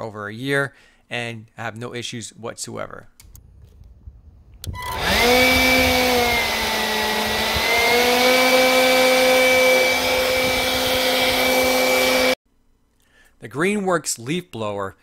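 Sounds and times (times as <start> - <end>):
leaf blower running: 4.8 - 12.4.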